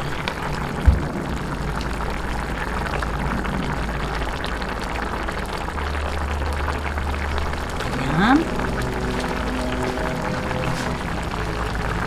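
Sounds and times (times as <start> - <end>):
broth simmering in a pan: 0.0 - 12.0
low hum: 0.0 - 12.0.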